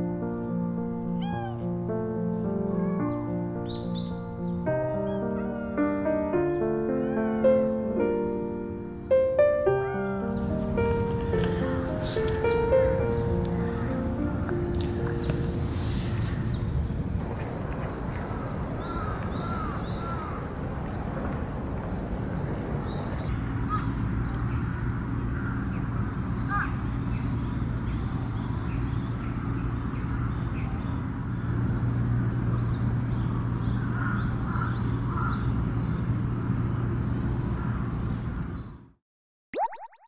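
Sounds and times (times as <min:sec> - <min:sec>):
small birds chirping: 0:09.8 - 0:17.4, 0:22.4 - 0:38.9
steady low rumble: 0:15.0 - 0:26.4
crows cawing: 0:18.8 - 0:20.5, 0:33.8 - 0:35.5.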